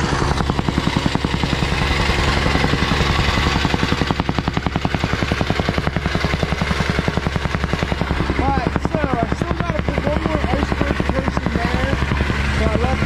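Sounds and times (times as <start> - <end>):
engine drone: 0.0 - 13.0
rammer pounding dirt: 0.0 - 13.0.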